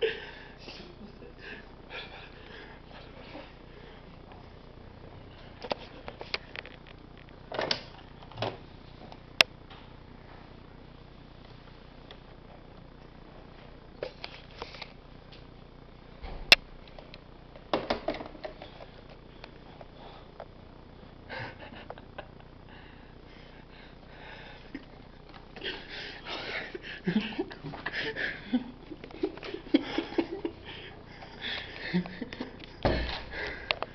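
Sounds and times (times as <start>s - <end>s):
stifled breathy laughter: 0.0s - 3.6s, 21.2s - 23.2s, 25.6s - 33.9s.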